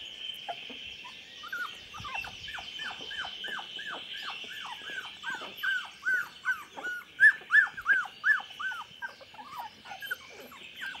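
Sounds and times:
puppies whimpering and squealing: 0.0s - 11.0s.

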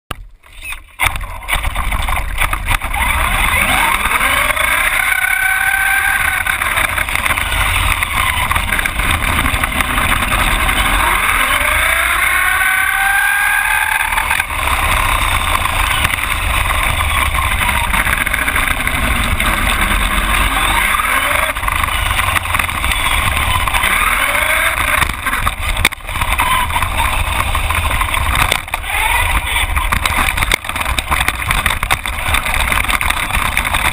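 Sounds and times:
tyres rumbling on asphalt: 0.1s - 33.9s
toy truck motor whine: 2.9s - 25.4s.

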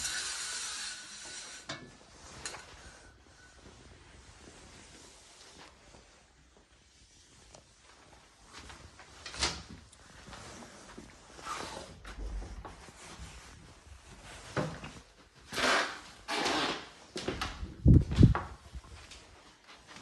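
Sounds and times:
scuffing rustling noises: 3.6s - 15.5s.

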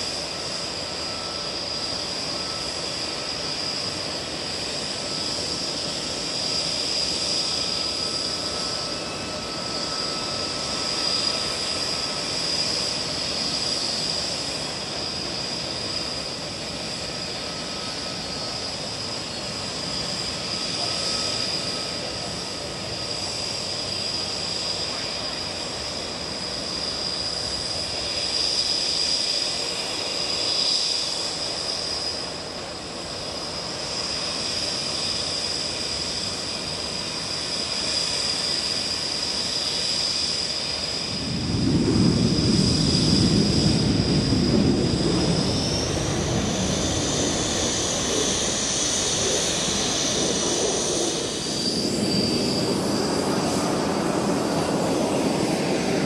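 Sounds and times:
aircraft engines whining: 0.0s - 56.0s
deep rumble: 41.2s - 51.3s.

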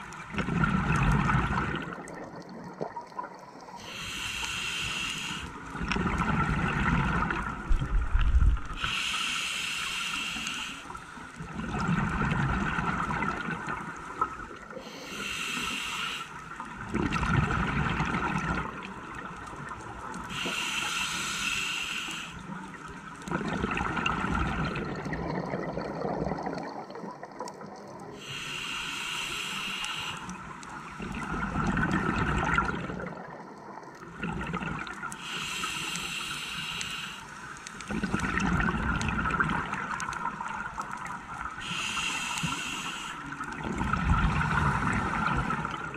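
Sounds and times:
regulator inhale hiss: 3.7s - 5.7s, 8.7s - 11.4s, 14.7s - 16.5s, 20.2s - 22.6s, 28.2s - 31.0s, 35.1s - 37.9s, 41.6s - 43.5s.

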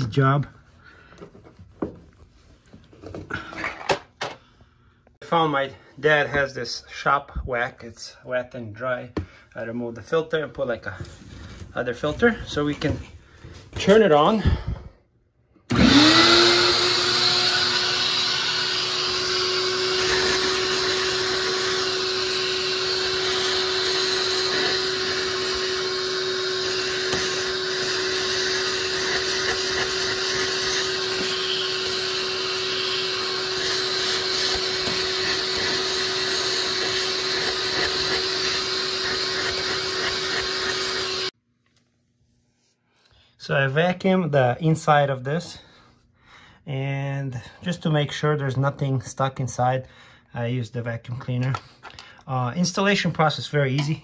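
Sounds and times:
vacuum nozzle sucking: 15.7s - 41.3s
shop vacuum motor whine: 15.7s - 41.4s.

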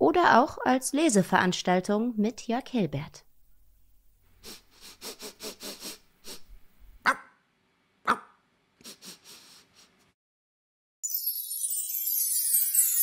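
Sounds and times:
dog barking: 7.0s - 7.4s, 8.0s - 8.4s
bright jingling music: 11.0s - 13.0s.

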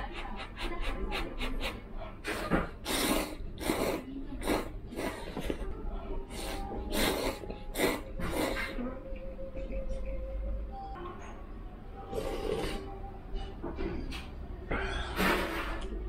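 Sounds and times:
person slurping noodles: 1.6s - 5.6s, 6.3s - 8.8s, 12.1s - 13.0s.

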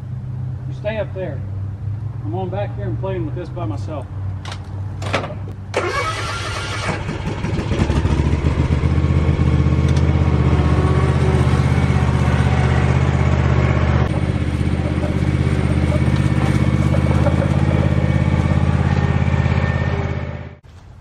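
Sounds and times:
mower engine starting and running: 5.1s - 20.6s.

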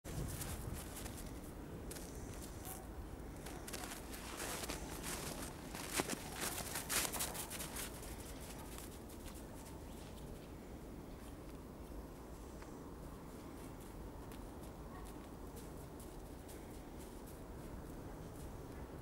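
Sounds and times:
footsteps crunching in snow: 0.1s - 10.4s.

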